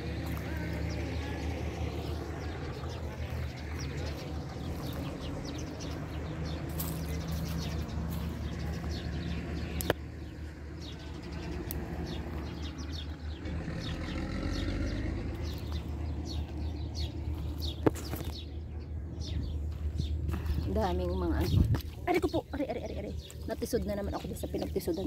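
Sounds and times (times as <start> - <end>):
low steady rumble: 0.0 - 25.0
small birds chirping: 0.0 - 25.0.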